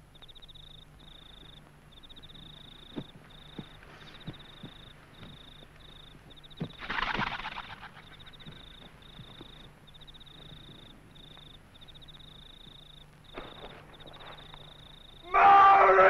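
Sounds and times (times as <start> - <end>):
rustle: 0.0 - 15.4
insects chirping: 0.0 - 16.0
low steady hum: 0.0 - 16.0
soft footsteps: 1.4 - 6.8.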